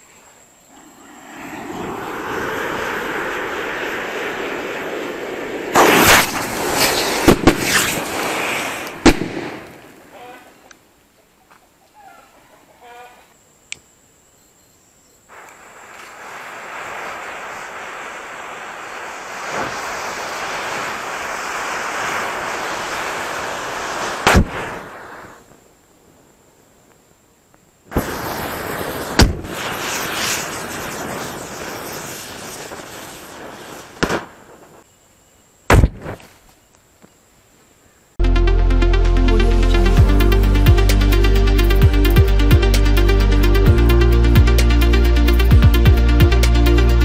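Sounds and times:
firecrackers banging: 1.4s - 10.0s, 15.3s - 25.3s, 27.9s - 34.8s
matchsticks flaring with hiss: 5.7s - 9.2s, 15.3s - 25.4s, 27.9s - 34.8s.

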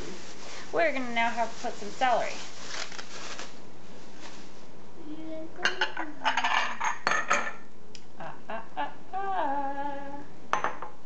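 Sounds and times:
kitchen utensils clattering: 5.7s - 7.6s.

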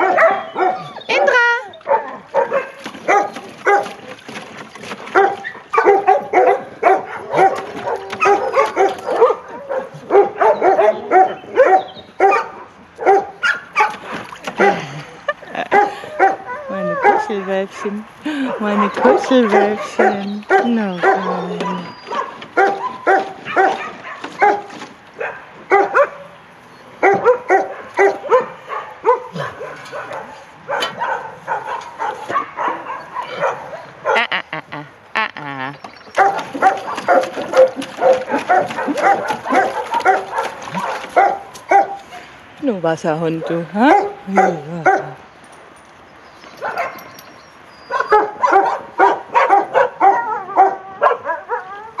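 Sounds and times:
dog whining yelp: 0.0s - 3.8s, 16.1s - 17.2s, 18.8s - 24.7s, 46.6s - 52.0s
dog yipping: 0.0s - 4.0s, 5.1s - 14.8s, 15.7s - 18.0s, 18.7s - 26.3s, 27.0s - 34.3s, 36.2s - 42.0s, 46.6s - 52.0s.

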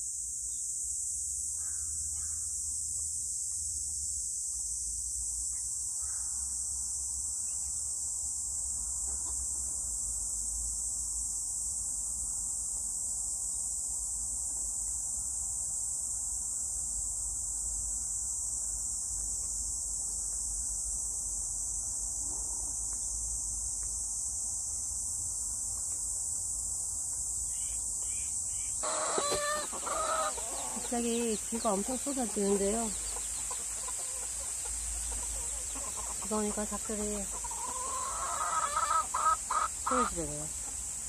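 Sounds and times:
insects buzzing: 0.0s - 41.0s
chickens clucking: 28.8s - 40.8s.

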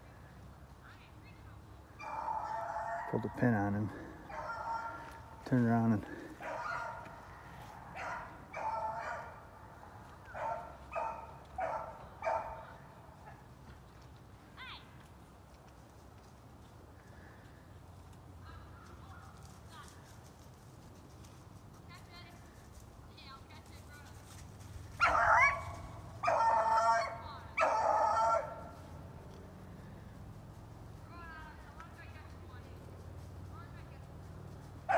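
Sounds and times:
beagle baying: 2.0s - 5.3s, 6.4s - 9.4s, 10.3s - 12.6s, 24.9s - 28.9s.

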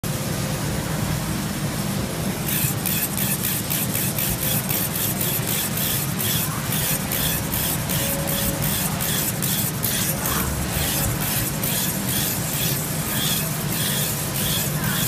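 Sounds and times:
electric trimmer humming: 2.4s - 15.0s
trimmer scraping pelt: 2.5s - 15.0s.

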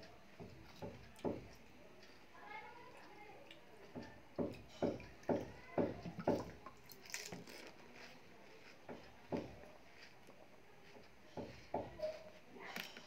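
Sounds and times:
wet chewing: 3.0s - 13.0s
crisp crunch of biting: 7.0s - 8.7s.

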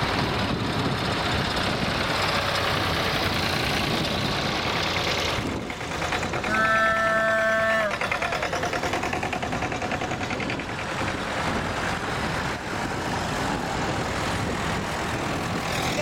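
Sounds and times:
tractor engines running: 0.0s - 16.0s
horn sounding: 6.4s - 8.4s.

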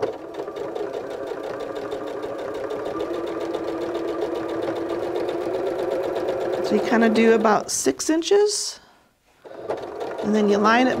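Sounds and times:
sewing machine motor hum: 0.0s - 7.8s, 9.4s - 11.0s
sewing needle ticking: 0.3s - 7.6s.

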